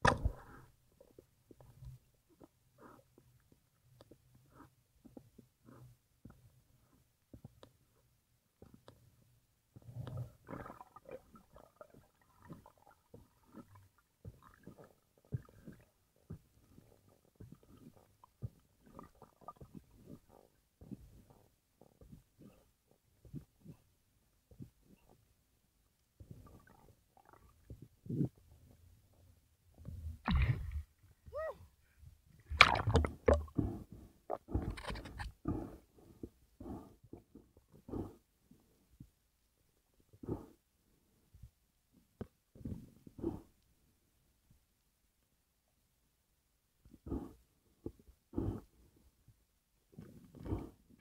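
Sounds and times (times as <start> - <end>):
underwater knocks and clicks: 0.0 - 0.6, 32.4 - 35.4
low underwater rumbles: 0.0 - 3.0, 9.3 - 23.8, 26.2 - 38.1
low underwater rumbling: 26.2 - 36.8
seawater gurgling and splashing: 30.2 - 30.9, 32.5 - 35.0.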